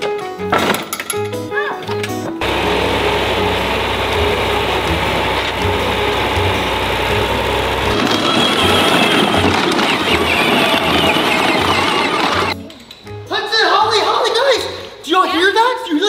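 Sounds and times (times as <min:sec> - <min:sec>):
tractor engine running: 0:02.4 - 0:12.6.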